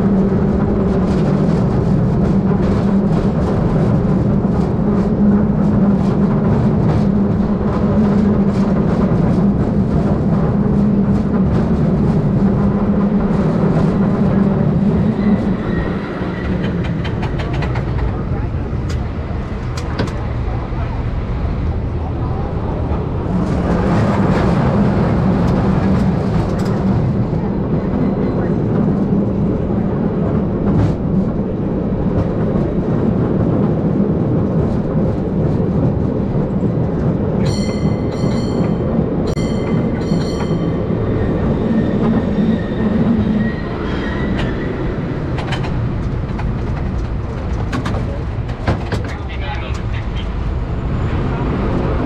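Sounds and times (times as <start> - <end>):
streetcar wheels rumbling on rails: 0.0 - 52.0
streetcar bell ringing: 37.4 - 42.0.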